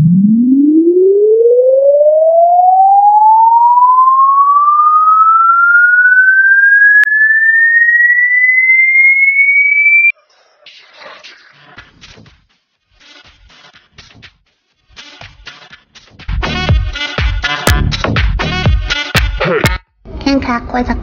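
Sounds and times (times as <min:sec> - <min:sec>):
rising electronic tone: 0:00.0 - 0:10.1.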